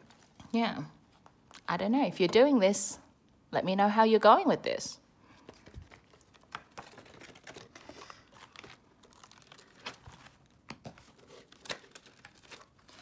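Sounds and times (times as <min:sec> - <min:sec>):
paper rustling: 0:05.4 - 0:13.0.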